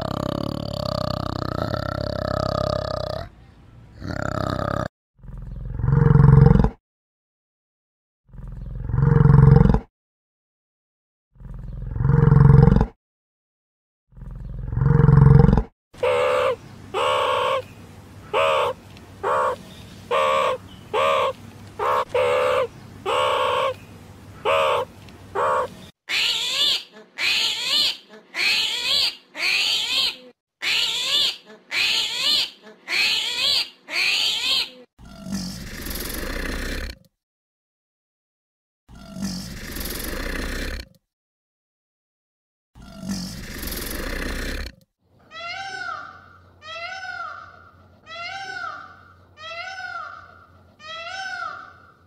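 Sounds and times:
deep animal roars: 0:00.0 - 0:03.3, 0:04.0 - 0:06.8, 0:08.3 - 0:09.9, 0:11.4 - 0:13.0, 0:14.1 - 0:15.7, 0:35.0 - 0:37.0, 0:38.9 - 0:41.0, 0:42.8 - 0:44.8
short repeated pitched animal calls: 0:16.0 - 0:17.7, 0:18.3 - 0:23.8, 0:24.4 - 0:34.8
high bright falling animal calls: 0:16.0 - 0:34.9, 0:45.2 - 0:52.0
noisy animal rasp: 0:18.3 - 0:23.8, 0:24.4 - 0:28.8, 0:35.0 - 0:37.0, 0:38.9 - 0:41.0, 0:42.8 - 0:44.8.

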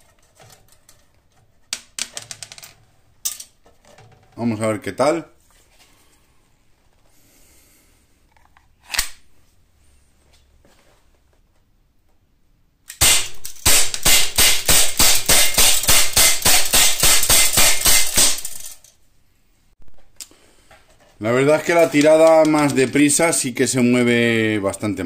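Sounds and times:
air pistol shots popping: 0:13.0 - 0:18.6.

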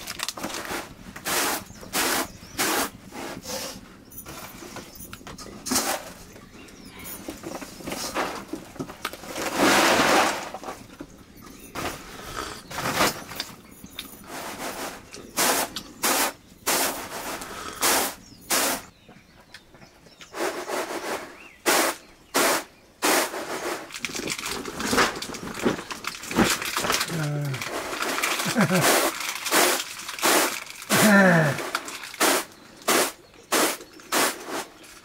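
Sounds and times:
rustling: 0:00.0 - 0:18.9, 0:20.3 - 0:35.0
sharp knocks and cracks: 0:23.0 - 0:35.0.

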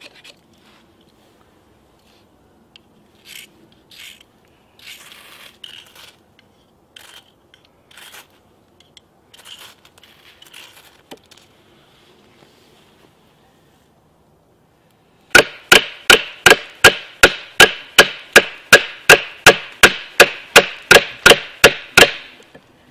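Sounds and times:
knife scraping dry wood: 0:00.0 - 0:00.9, 0:03.1 - 0:11.5.

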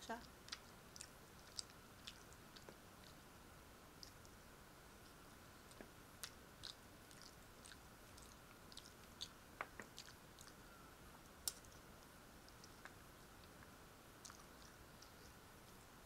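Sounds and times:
soft chewing: 0:00.1 - 0:16.0
lip-smacking clicks: 0:00.2 - 0:03.2, 0:11.2 - 0:15.8.

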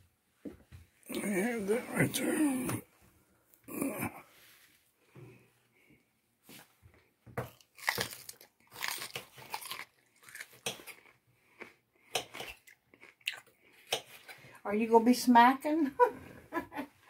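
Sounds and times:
crunching raw bell pepper: 0:07.4 - 0:14.4.

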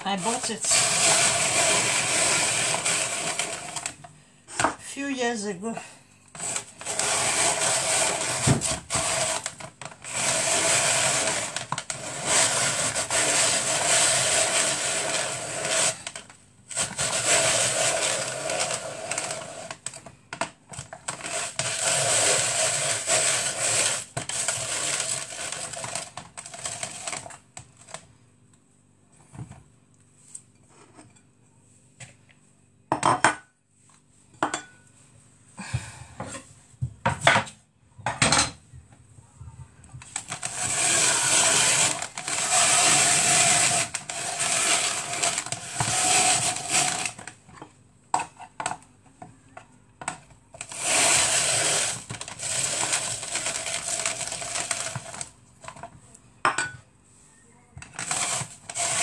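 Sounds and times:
kitchen machine motor running: 0:00.1 - 0:04.0, 0:06.4 - 0:19.9, 0:21.0 - 0:27.3, 0:40.0 - 0:47.3, 0:50.6 - 0:55.4, 0:57.8 - 0:59.0.

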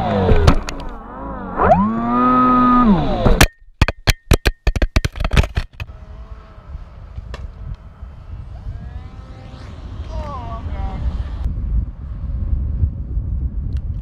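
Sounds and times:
distant model plane propellers: 0:00.0 - 0:03.4, 0:05.4 - 0:14.0
model plane motor whining: 0:00.0 - 0:03.4, 0:05.8 - 0:11.5
wind rumble on microphone: 0:05.8 - 0:14.0.

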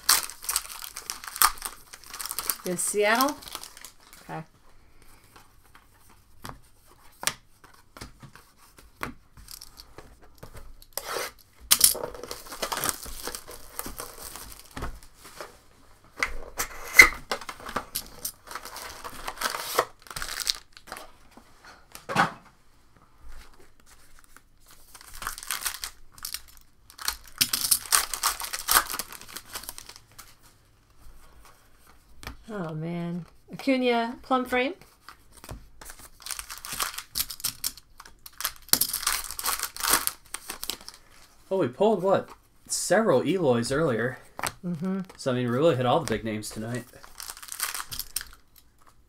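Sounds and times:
wrappers ripping and crinkling: 0:00.0 - 0:04.5, 0:09.4 - 0:09.9, 0:10.8 - 0:15.1, 0:17.3 - 0:21.0, 0:23.7 - 0:30.3, 0:35.0 - 0:41.4, 0:46.5 - 0:49.0.

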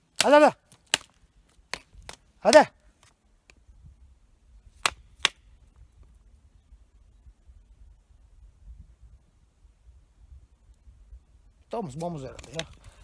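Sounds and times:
sharp cracks: 0:00.1 - 0:02.7, 0:04.8 - 0:05.5
man shouting: 0:00.2 - 0:00.6, 0:02.4 - 0:02.8.

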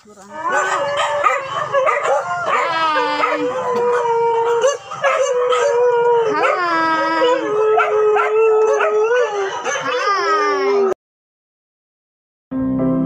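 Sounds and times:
dogs howling: 0:00.3 - 0:11.0.

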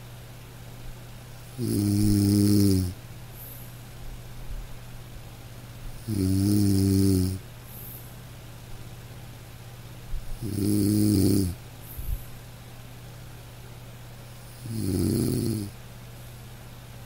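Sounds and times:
steady low hum: 0:00.0 - 0:17.0
man snoring: 0:01.5 - 0:03.0, 0:06.0 - 0:07.4, 0:10.4 - 0:11.6, 0:14.5 - 0:15.8.

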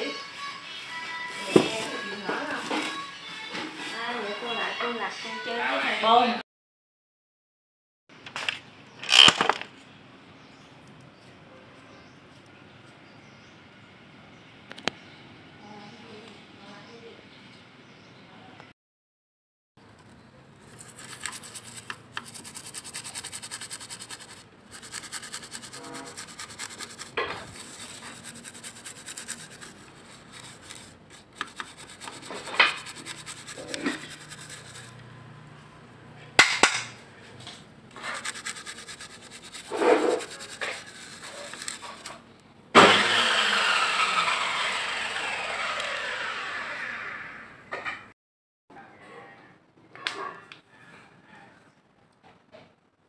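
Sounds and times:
brush scrubbing circuit board: 0:20.6 - 0:35.4, 0:38.0 - 0:42.2.

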